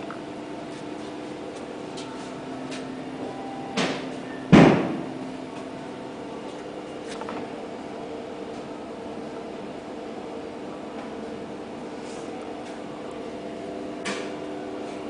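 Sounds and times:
steady hum: 0:00.0 - 0:15.0
knocks with ringing tail: 0:03.8 - 0:05.1.

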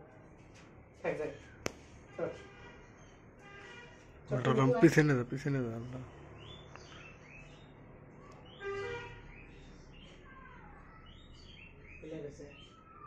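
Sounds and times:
bird chirping: 0:05.5 - 0:13.0.

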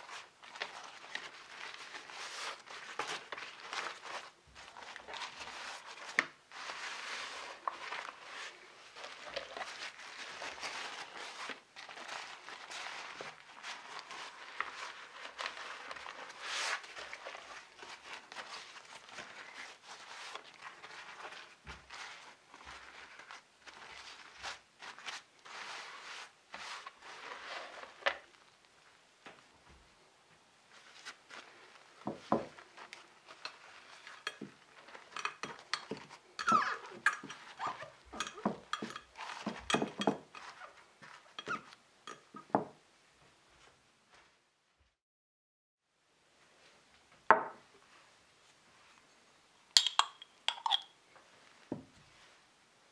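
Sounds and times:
wet paper crinkling: 0:00.0 - 0:28.9, 0:30.7 - 0:42.2.

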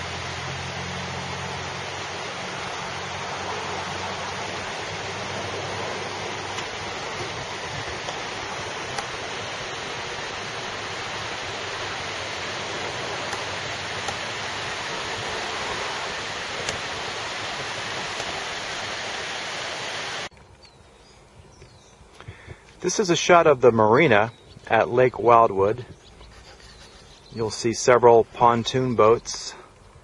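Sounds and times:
outdoor rushing noise: 0:00.0 - 0:20.3
low hum: 0:00.0 - 0:30.0.

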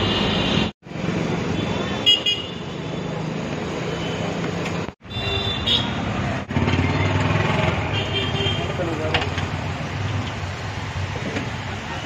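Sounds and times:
road traffic engine hum: 0:00.0 - 0:12.0.

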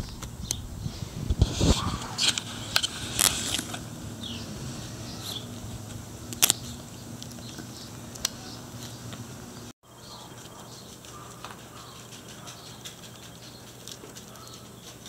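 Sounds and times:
leaves rustling: 0:00.0 - 0:15.0
low steady background noise: 0:00.0 - 0:15.0
dog nibbling with sharp clicks: 0:10.2 - 0:15.0.

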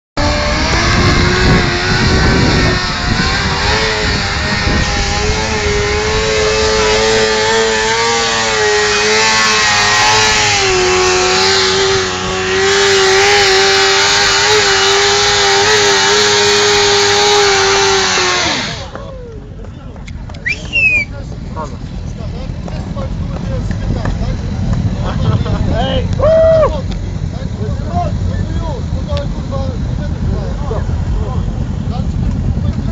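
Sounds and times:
motorcycle engine at high revs: 0:00.2 - 0:19.0, 0:21.1 - 0:32.9.

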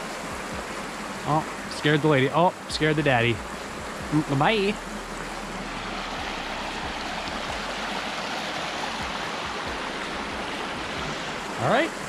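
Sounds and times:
creek water rushing over rocks: 0:00.0 - 0:12.0.

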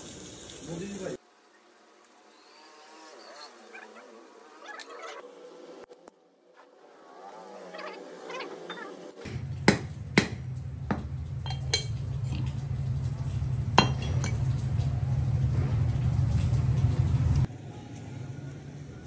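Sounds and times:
steady low rumble: 0:09.3 - 0:17.5.

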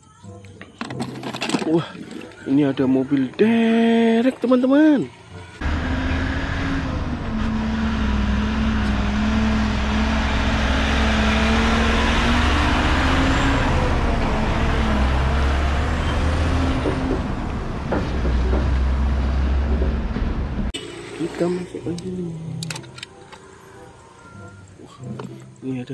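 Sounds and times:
tyre and road noise: 0:05.5 - 0:24.0
diesel engine droning: 0:05.6 - 0:22.5.

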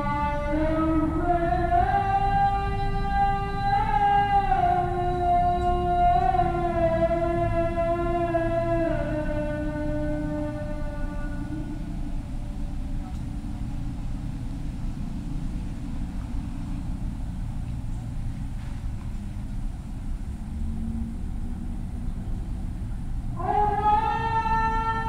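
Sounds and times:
call to prayer singing: 0:00.0 - 0:15.6, 0:23.2 - 0:25.0
distant traffic rumble: 0:00.0 - 0:25.0.

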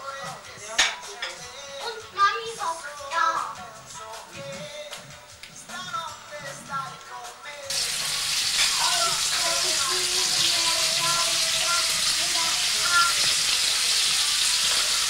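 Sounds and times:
food sizzling in a pan: 0:07.7 - 0:15.0.

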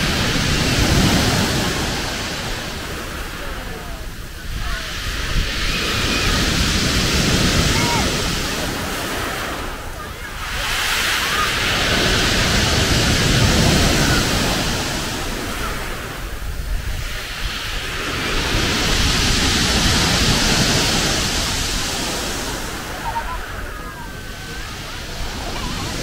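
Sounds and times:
sea waves on pebble beach: 0:00.0 - 0:26.0.

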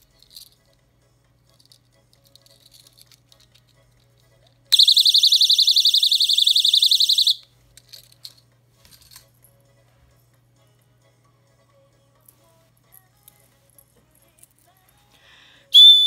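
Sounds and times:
plastic case and keyring rattling: 0:01.6 - 0:04.1
personal alarm shrieking: 0:04.8 - 0:07.4.

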